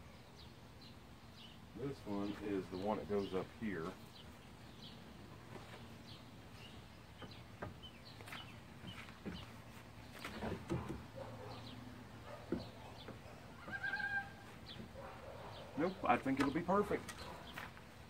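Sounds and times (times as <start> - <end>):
wooden board knocking and scraping: 7.2 - 11.1.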